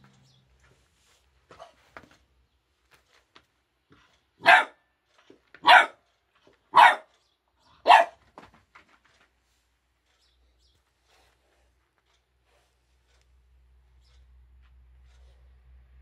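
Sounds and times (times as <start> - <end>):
puppy barking: 4.4 - 4.8, 5.6 - 6.0, 6.7 - 7.2, 7.8 - 8.2.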